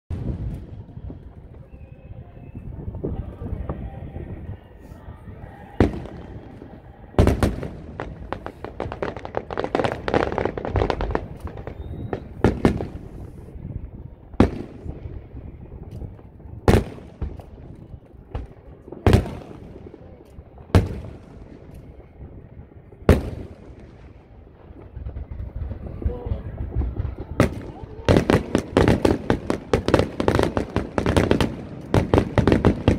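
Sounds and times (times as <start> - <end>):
fireworks booming: 0.1 - 32.9
fireworks crackling: 0.1 - 32.9.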